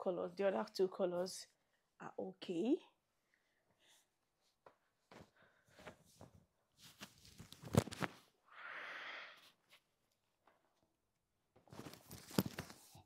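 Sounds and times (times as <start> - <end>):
clothes and packaging rustling: 4.3 - 8.4, 11.6 - 13.0.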